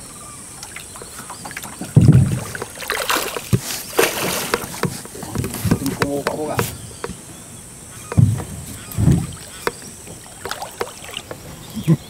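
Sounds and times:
water splashing and swishing: 0.0s - 12.0s
dull low thump: 1.9s - 2.7s, 8.0s - 9.9s
sharp knocks: 2.0s - 7.2s, 8.0s - 11.4s.

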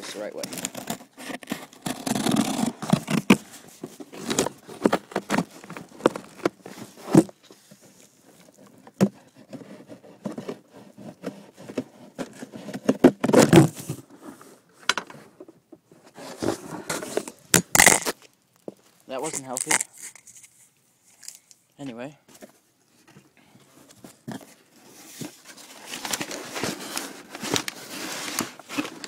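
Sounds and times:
cardboard tearing and scraping: 0.0s - 7.4s, 16.2s - 18.2s, 19.2s - 20.4s, 25.0s - 29.0s.

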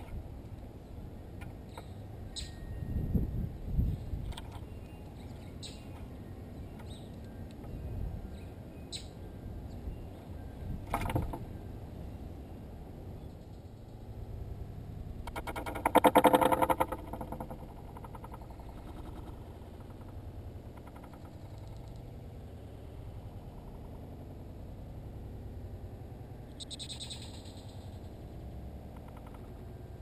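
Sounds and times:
faint low rumble: 0.0s - 30.0s.

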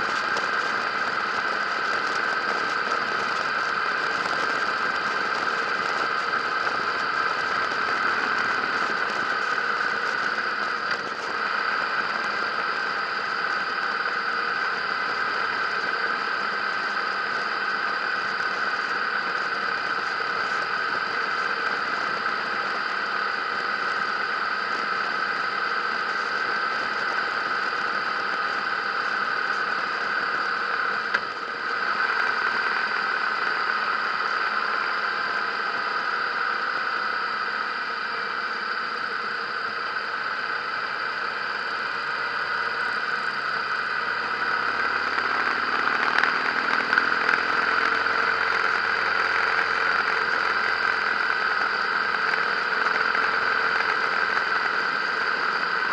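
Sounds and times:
motorcycle engine running: 0.0s - 36.2s, 40.5s - 55.9s
road and wind noise: 0.0s - 37.9s.

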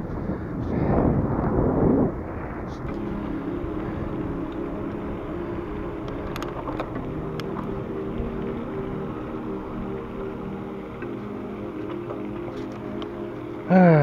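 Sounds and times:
wind on microphone: 0.0s - 13.6s
bicycle tyre rumble on pavement: 0.0s - 14.0s
low steady hum: 0.0s - 14.0s.

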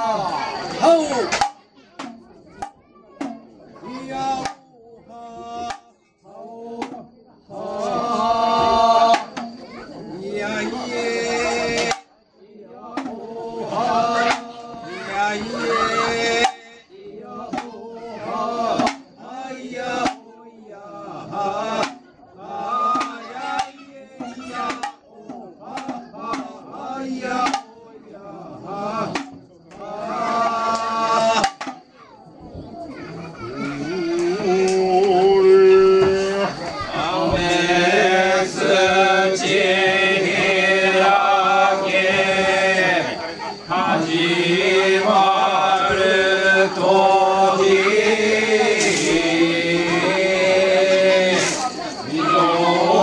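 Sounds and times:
man singing chant: 3.8s - 31.7s, 33.5s - 53.0s
sharp percussion strikes: 16.3s - 16.7s, 22.9s - 27.7s, 44.0s - 53.0s.

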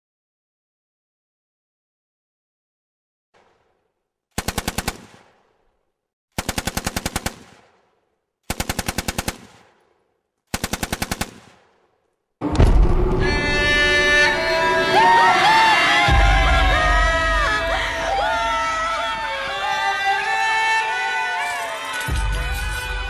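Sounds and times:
automatic gunfire: 4.4s - 5.8s, 6.4s - 12.0s
music: 12.4s - 23.0s
crowd noise: 13.3s - 23.0s.

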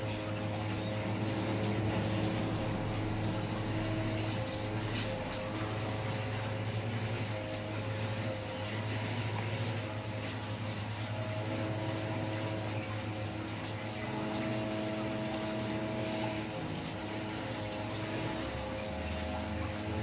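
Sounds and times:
electric clipper buzzing: 8.0s - 20.0s.

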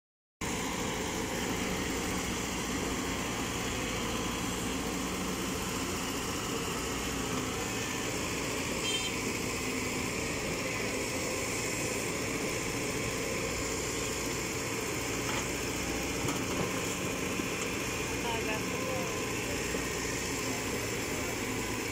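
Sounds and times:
excavator diesel engine running: 0.4s - 21.9s.

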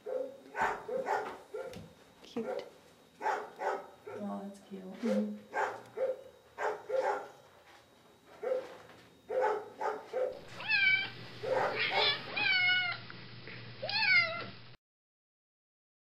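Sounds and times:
cat meowing: 10.5s - 13.0s, 13.8s - 14.5s.

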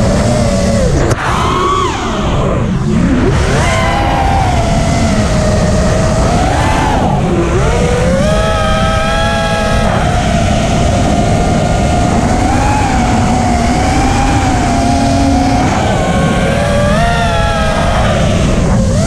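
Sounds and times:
drone motors whining: 0.0s - 19.0s
wind rumble on microphone: 0.0s - 19.0s.

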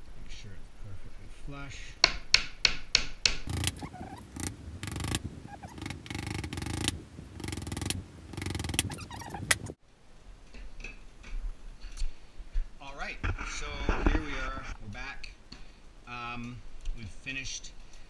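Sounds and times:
hammer driving nail into wood: 2.0s - 3.8s
wood rubbing and scraping: 3.5s - 9.8s.

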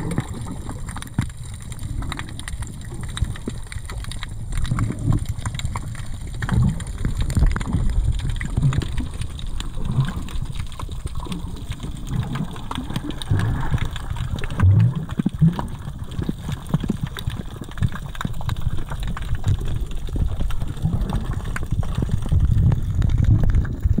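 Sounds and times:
small clicks and crackles: 0.0s - 24.0s
underwater rumble of moving water: 0.0s - 24.0s
water gurgling: 0.0s - 24.0s.

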